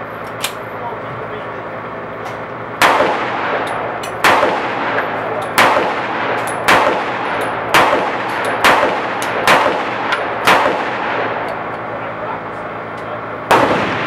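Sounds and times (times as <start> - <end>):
pistol shots with echo: 2.8 - 11.6, 13.5 - 14.0.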